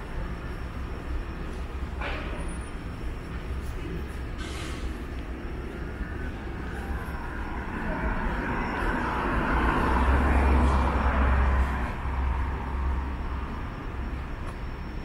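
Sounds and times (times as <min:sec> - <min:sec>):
steady low rumble: 0:02.7 - 0:15.0
car driving past: 0:05.9 - 0:13.7.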